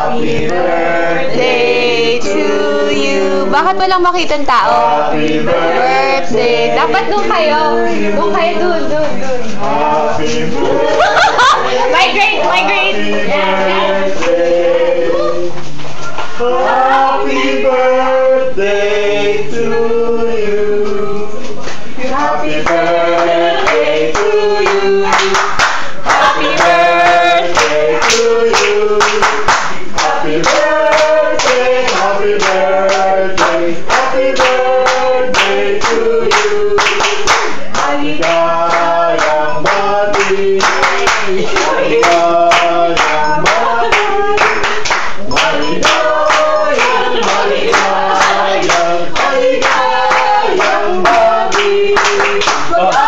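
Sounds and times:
group singing a birthday song: 0.0 - 53.0
people clapping along: 12.4 - 17.0, 22.1 - 53.0.

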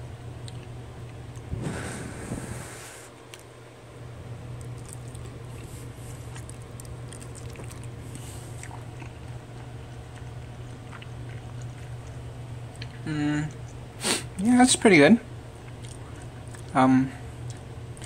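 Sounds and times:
steady low hum: 0.0 - 18.0
person chewing: 0.4 - 1.5, 4.6 - 13.8, 15.6 - 16.8, 17.4 - 18.0.

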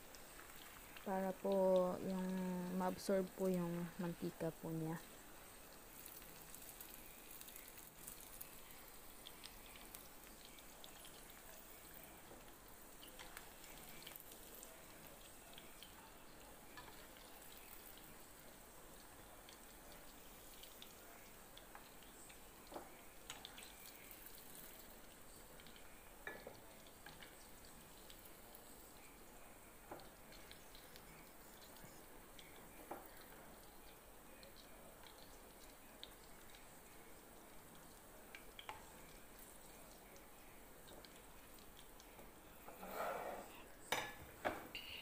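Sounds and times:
meatballs sizzling in oil: 0.0 - 45.0.

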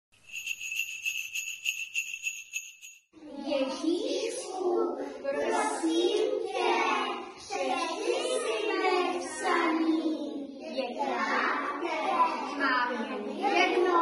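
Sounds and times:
young children singing: 3.2 - 14.0.

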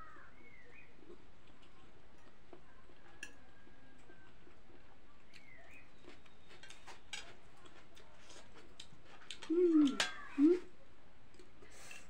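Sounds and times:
bird chirping: 0.0 - 1.2
noodles being slurped and chewed: 0.7 - 10.0.

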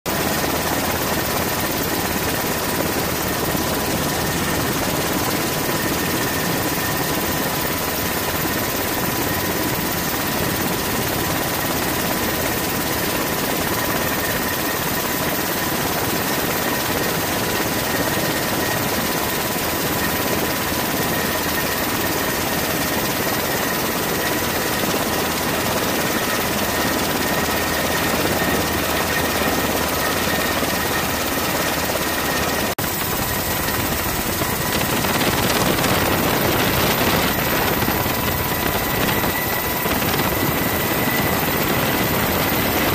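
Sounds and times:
constant whine: 0.1 - 42.9
helicopter cabin din: 26.5 - 42.9.

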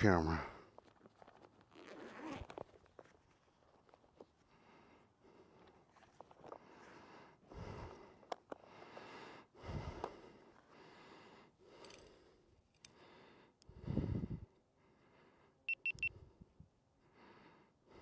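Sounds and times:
person breathing heavily: 4.5 - 5.8, 6.5 - 15.6.

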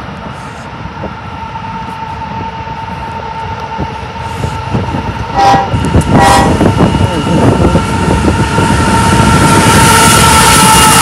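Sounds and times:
diesel locomotives humming: 0.0 - 11.0
wind buffeting microphone: 0.8 - 11.0
locomotive horn blast: 5.3 - 6.8.

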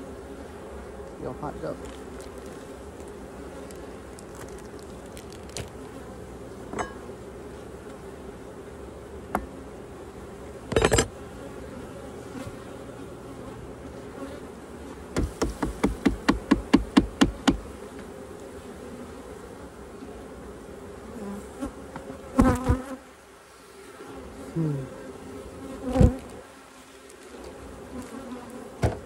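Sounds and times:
honeybees buzzing: 0.0 - 29.0
sharp knocks: 15.2 - 17.6.

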